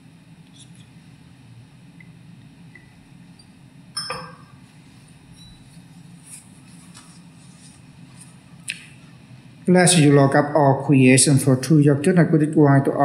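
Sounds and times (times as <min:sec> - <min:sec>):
clink of glass on metal chalice: 0:04.0 - 0:04.6.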